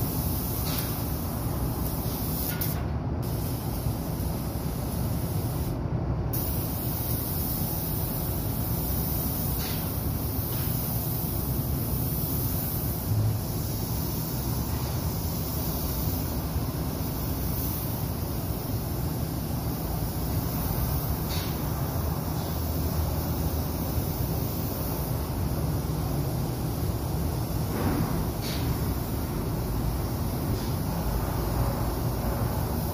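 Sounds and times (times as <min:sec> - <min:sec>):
paint spray gun hissing: 0:00.0 - 0:05.8, 0:06.4 - 0:25.5.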